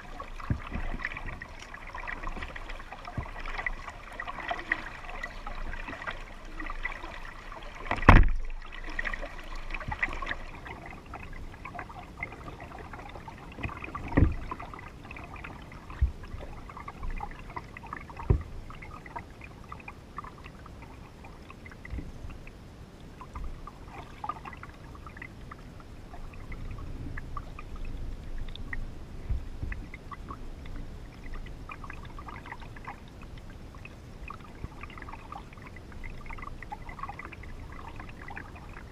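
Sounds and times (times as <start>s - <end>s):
paddle splashing water: 0.0s - 22.4s, 23.2s - 38.9s
water lapping against hull: 0.0s - 38.9s
knocks on plastic hull: 7.9s - 8.4s, 14.1s - 14.4s.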